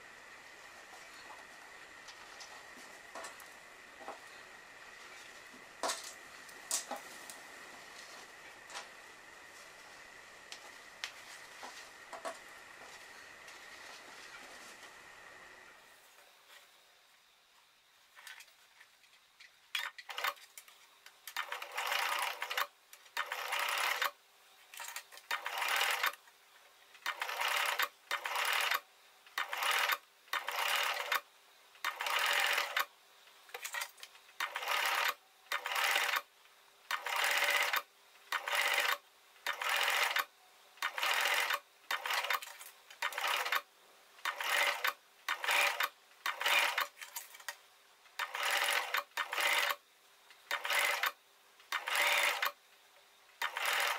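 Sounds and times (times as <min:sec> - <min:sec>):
faint steady hum: 0:00.0 - 0:53.9
sewing machine stitching: 0:19.8 - 0:20.4, 0:21.3 - 0:24.2, 0:24.8 - 0:26.2, 0:27.0 - 0:28.8, 0:29.4 - 0:31.2, 0:31.8 - 0:32.9, 0:34.4 - 0:36.3, 0:36.9 - 0:47.2, 0:48.2 - 0:49.8, 0:50.4 - 0:52.6, 0:53.4 - 0:53.9.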